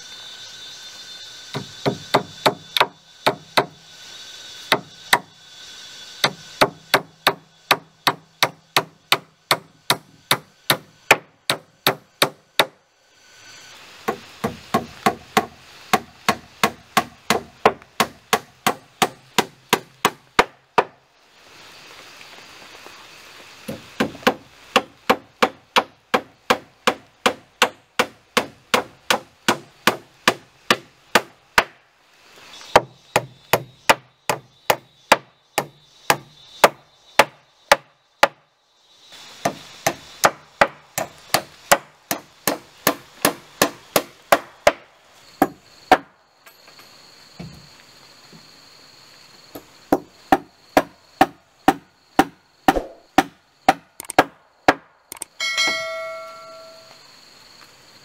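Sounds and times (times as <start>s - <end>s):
hammer nailing wood: 1.6s - 3.8s, 6.2s - 12.8s, 14.1s - 21.0s, 23.7s - 31.8s, 39.4s - 44.8s.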